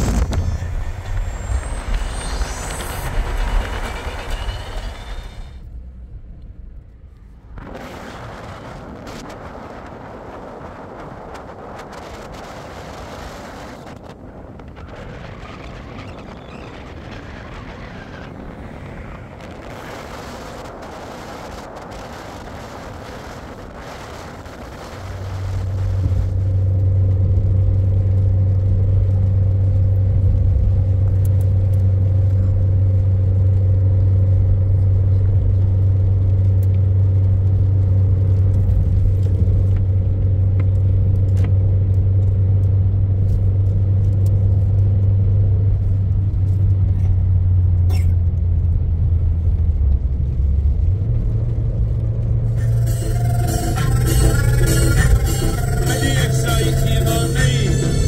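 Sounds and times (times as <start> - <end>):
engine running steadily: 0.0 - 7.8, 23.9 - 58.0.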